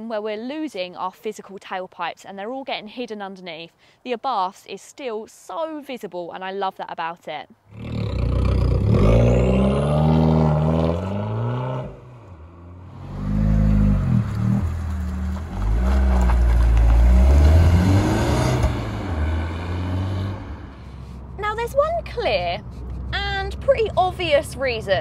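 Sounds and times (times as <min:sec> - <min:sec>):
car engine revving: 0:07.7 - 0:24.7.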